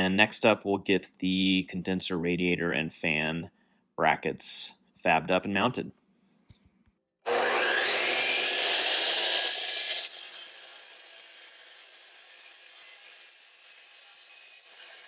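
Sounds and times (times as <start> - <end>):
electric miter saw whining: 7.3 - 15.0.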